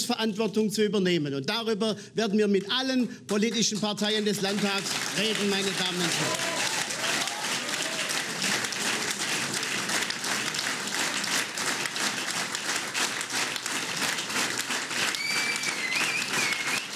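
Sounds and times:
audience applauding: 0:03.4 - 0:16.9.

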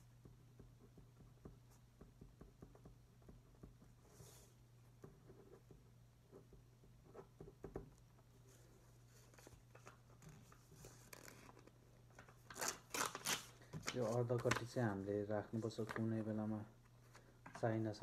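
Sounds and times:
paper handling: 0:09.2 - 0:14.8.

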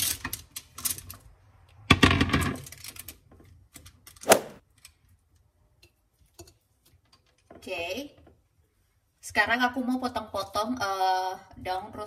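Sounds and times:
sharp knock: 0:04.3 - 0:04.6.

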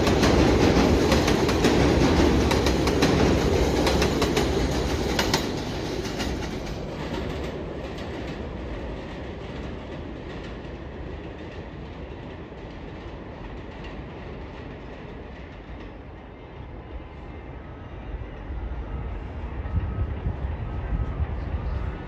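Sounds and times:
train wheels clattering on rails: 0:00.0 - 0:16.2.

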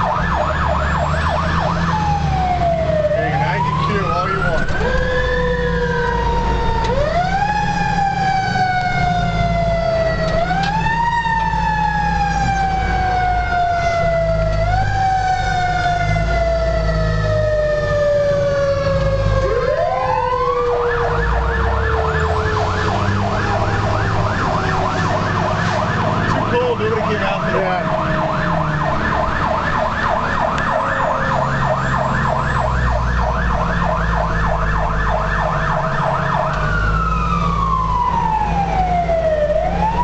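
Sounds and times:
emergency siren wailing and yelping: 0:00.0 - 0:40.0
fire engine rumble: 0:00.0 - 0:40.0.

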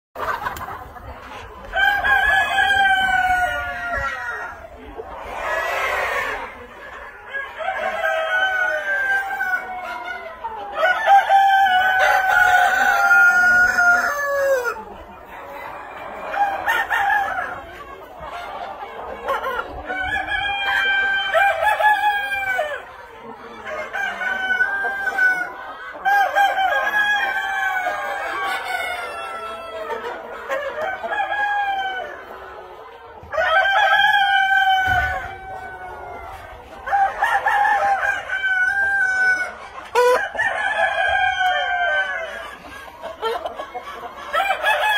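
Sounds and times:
chickens clucking: 0:00.2 - 0:44.9
roosters crowing: 0:01.6 - 0:04.7, 0:05.3 - 0:14.9, 0:19.6 - 0:22.9, 0:33.2 - 0:42.7, 0:44.2 - 0:44.9.

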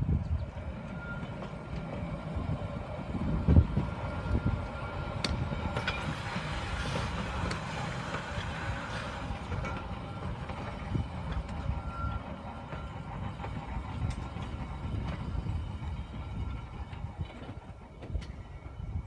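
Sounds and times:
trolley car rolling on tracks: 0:00.0 - 0:19.0
wheels clicking on rails: 0:00.2 - 0:19.0.

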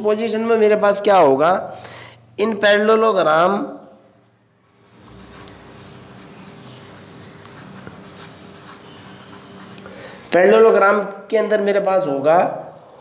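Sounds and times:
marker pen scribbling on paper: 0:03.8 - 0:10.4.

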